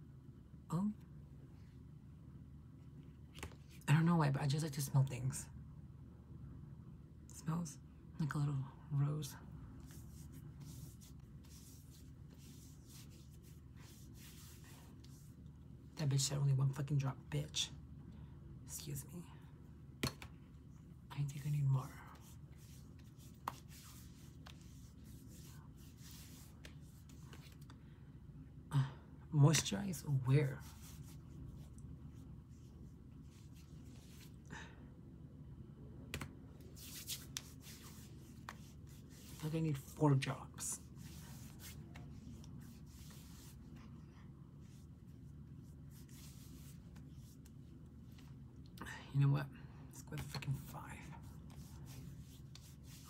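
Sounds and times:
fingertips rubbing skin: 9.8s - 15.4s, 22.2s - 27.6s, 36.8s - 39.5s
hands rubbing skin: 9.8s - 15.5s, 22.1s - 27.7s, 30.5s - 34.4s, 36.1s - 39.9s, 40.7s - 43.9s, 44.6s - 48.3s, 50.5s - 53.0s.

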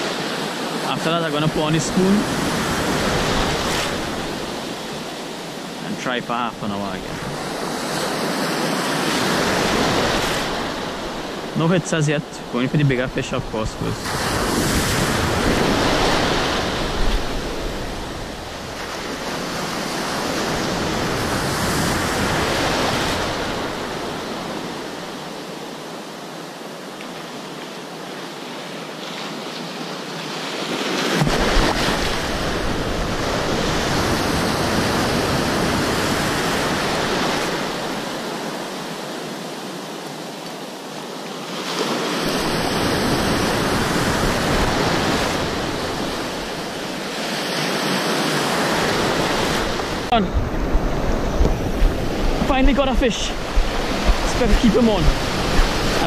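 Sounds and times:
ocean surf breaking: 0.0s - 56.0s
wind rumbling on microphone: 12.8s - 24.2s, 48.6s - 56.0s.

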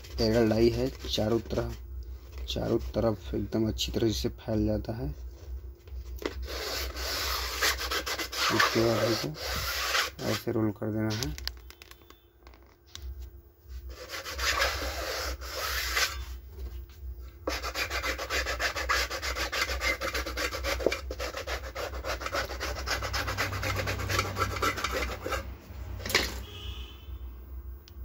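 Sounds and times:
hands rubbing loudspeaker rim: 6.2s - 10.5s, 13.7s - 16.7s, 17.4s - 25.5s.

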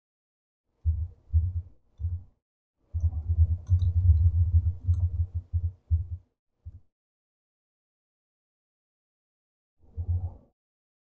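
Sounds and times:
typing on a keyboard: 3.0s - 5.3s.

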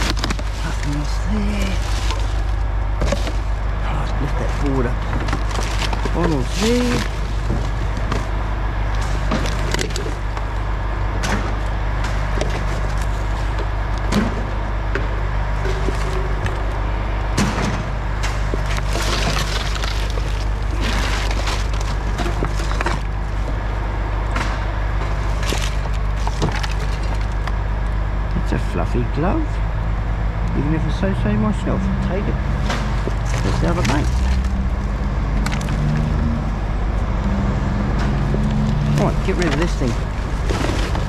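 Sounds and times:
rustling: 0.0s - 3.7s, 4.6s - 10.5s, 18.4s - 23.6s
rummaging through rubbish: 0.0s - 16.8s, 17.4s - 27.6s, 32.5s - 36.4s, 37.9s - 41.0s
steady low hum: 0.0s - 41.0s.

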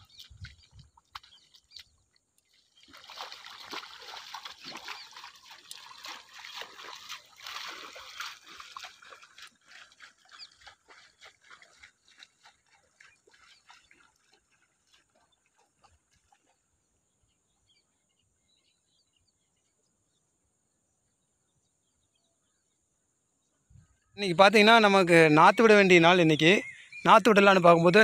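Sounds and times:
muddy water splashing: 0.0s - 16.8s.

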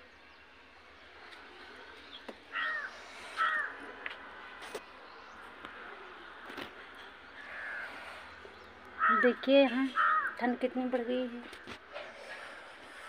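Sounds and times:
crows cawing: 2.5s - 3.8s, 7.4s - 8.1s, 9.0s - 10.4s.

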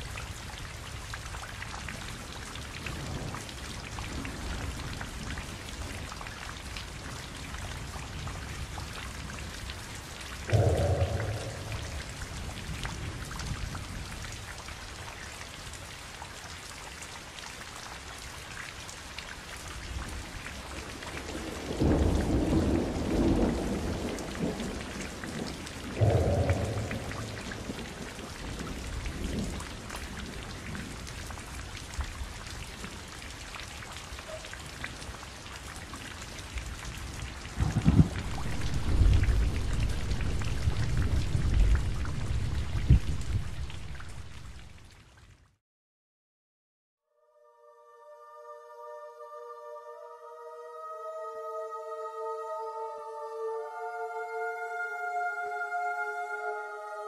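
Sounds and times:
steady rain: 0.0s - 45.6s
thunder rumbling: 10.4s - 13.3s, 21.2s - 31.0s, 37.4s - 44.9s.

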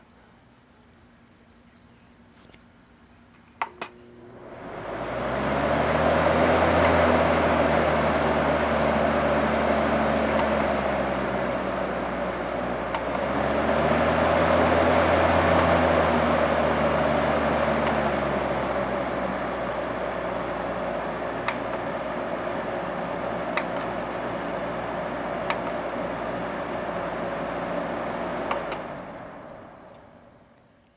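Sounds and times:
electric fan running: 2.2s - 30.9s
fan control button clicks: 10.3s - 10.8s, 12.9s - 13.3s, 17.8s - 18.2s, 21.4s - 21.9s, 23.5s - 24.0s, 25.4s - 25.8s.

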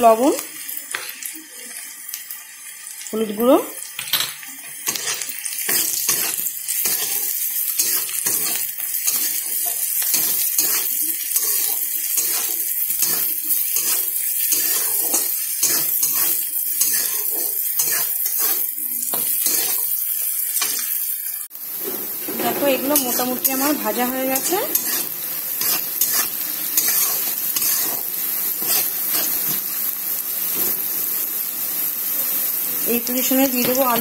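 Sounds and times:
food sizzling in oil: 0.0s - 34.0s
spatula scraping a pan: 4.6s - 21.0s, 22.1s - 29.7s.

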